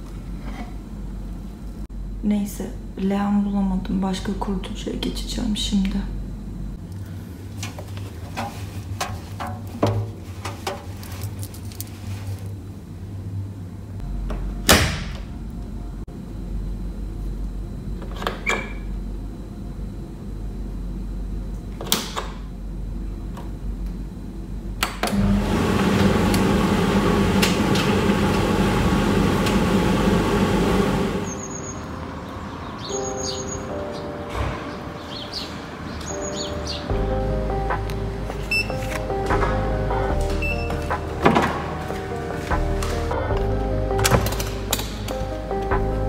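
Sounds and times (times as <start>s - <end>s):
tumble dryer humming: 22.5s - 32.7s, 36.9s - 46.0s
clicks and knocks of doors: 44.0s - 45.3s.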